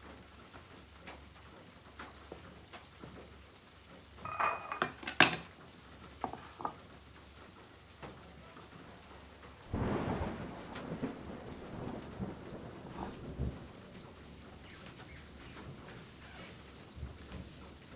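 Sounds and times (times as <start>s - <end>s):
bowl knocking down: 4.2s - 5.5s, 6.2s - 6.8s.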